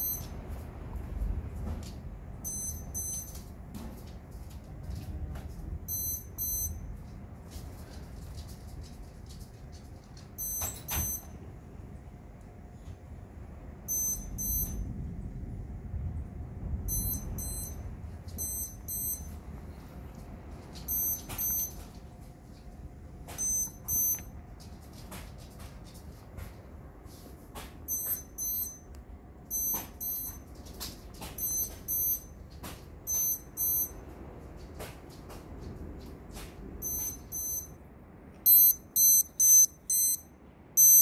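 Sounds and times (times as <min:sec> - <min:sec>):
lightning detector beeping: 0:00.0 - 0:00.6, 0:02.4 - 0:03.6, 0:05.8 - 0:07.0, 0:10.3 - 0:11.5, 0:13.8 - 0:15.1, 0:16.8 - 0:19.5, 0:20.8 - 0:22.0, 0:23.3 - 0:24.4, 0:27.8 - 0:32.4, 0:33.0 - 0:34.4, 0:36.8 - 0:37.8, 0:38.4 - 0:41.0
low rumble of thunder: 0:14.7 - 0:18.5.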